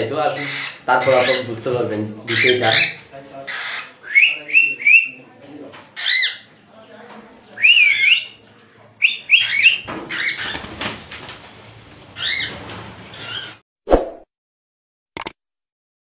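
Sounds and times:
cockatiels chirping: 0.3s - 1.6s, 2.3s - 5.2s, 6.0s - 6.5s, 7.6s - 10.7s, 12.2s - 13.6s
wings flapping: 10.0s - 13.5s.

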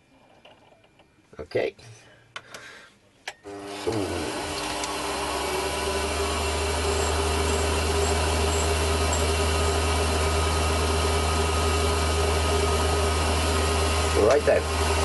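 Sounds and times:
metalworking lathe running: 3.5s - 15.0s.

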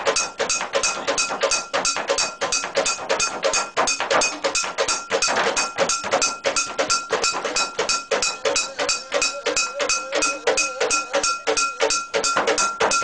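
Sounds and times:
drums beating: 0.0s - 13.0s
ringing metal gongs: 0.1s - 13.0s.

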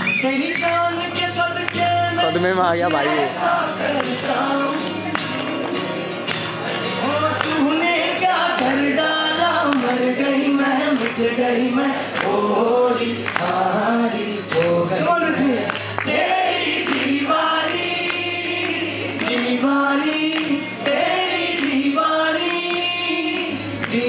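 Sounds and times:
man singing into a microphone: 0.0s - 5.8s, 7.0s - 24.0s
strummed acoustic guitar: 0.0s - 24.0s.

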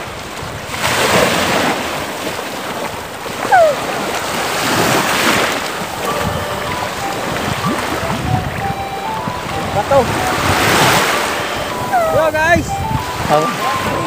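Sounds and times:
sea waves washing: 0.0s - 14.0s
water splashing from wading: 0.0s - 14.0s
wind buffeting microphone: 0.0s - 14.0s
high squeal falling in pitch: 11.3s - 14.0s.

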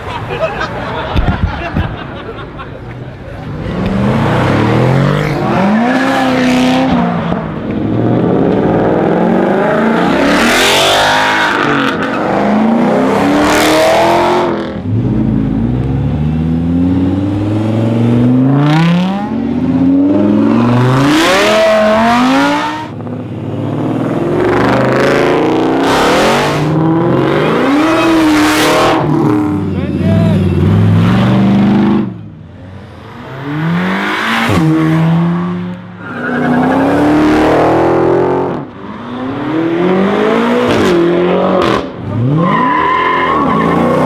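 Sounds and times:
cars accelerating past: 3.4s - 29.7s, 30.5s - 44.0s.

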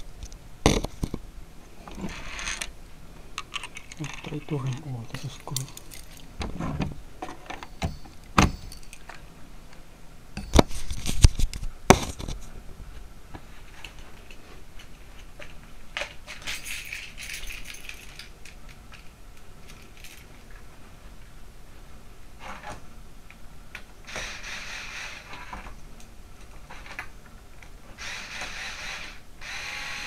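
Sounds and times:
metal parts and tools clattering: 3.4s - 6.3s, 7.2s - 9.2s, 16.0s - 19.0s, 19.6s - 20.4s.

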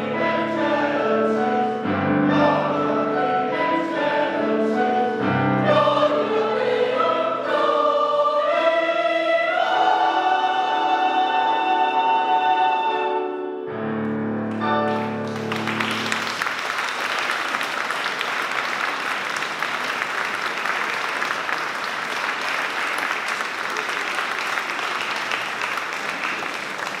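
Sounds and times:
choir singing chord: 0.0s - 13.7s
piano chords: 0.0s - 16.9s
audience applause: 14.8s - 27.0s.

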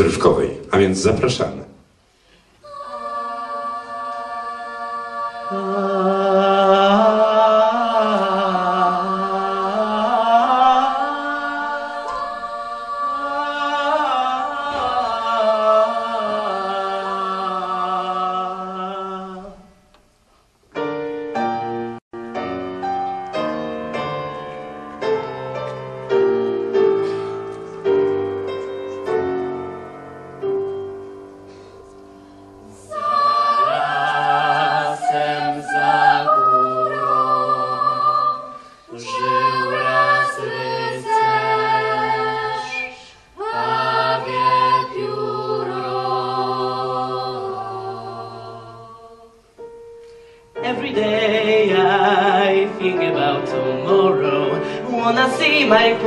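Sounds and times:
choir singing chords: 2.0s - 20.0s, 20.8s - 56.0s
grand piano playing: 20.7s - 42.9s, 49.6s - 56.0s.

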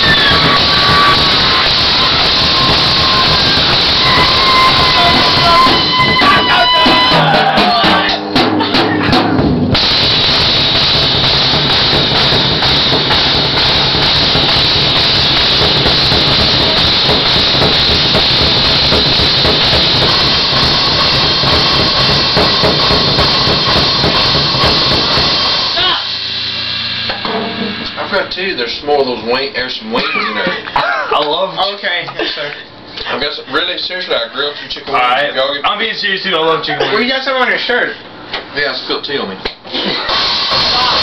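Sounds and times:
live band playing loudly: 0.0s - 25.8s
descending pitched notes: 0.0s - 29.7s.

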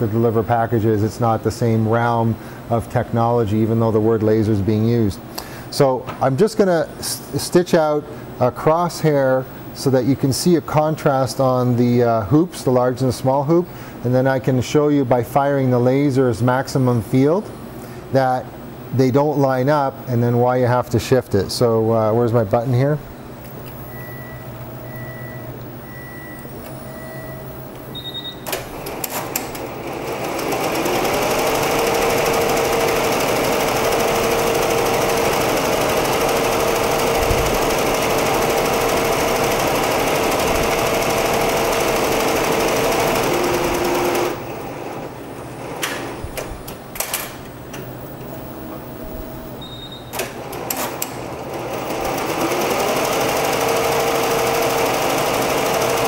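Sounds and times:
short beeps: 23.8s - 28.5s, 49.6s - 50.2s
machine clicks: 28.4s - 44.4s, 45.8s - 47.9s, 50.1s - 51.3s
embroidery machine needle clatter: 28.5s - 44.4s, 50.2s - 56.0s.

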